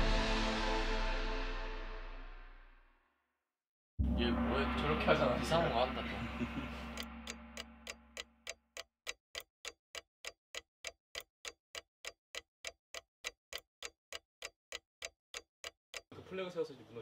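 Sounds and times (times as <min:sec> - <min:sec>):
clock-like ticking: 0:04.0 - 0:16.2.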